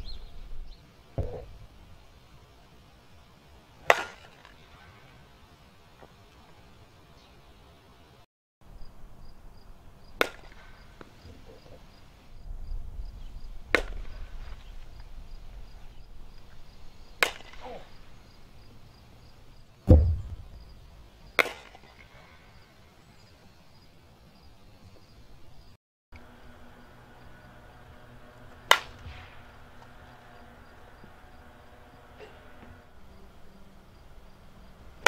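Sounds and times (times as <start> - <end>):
deep thump: 1.2 - 1.5, 19.9 - 20.8
bat hitting ball cracks: 3.8 - 4.9, 10.2 - 11.4, 13.7 - 15.0, 17.2 - 18.1, 21.3 - 22.2, 28.4 - 30.1.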